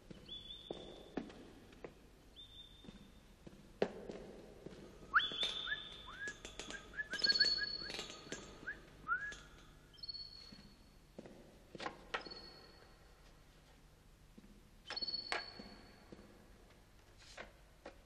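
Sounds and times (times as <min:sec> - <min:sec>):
man whistling bird-like calls: 0:05.1 - 0:10.2.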